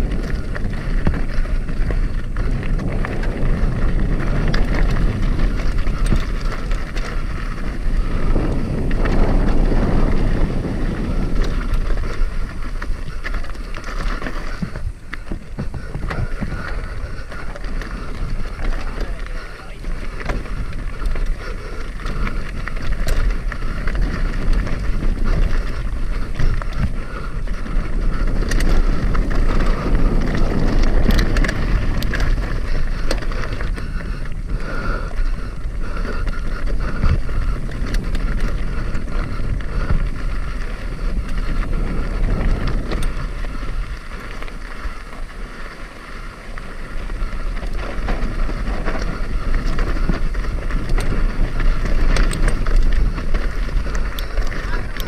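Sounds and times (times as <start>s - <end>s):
bike rattling and knocking: 0.0s - 55.0s
tyres crunching over gravel: 0.0s - 55.0s
wind buffeting microphone: 0.0s - 55.0s.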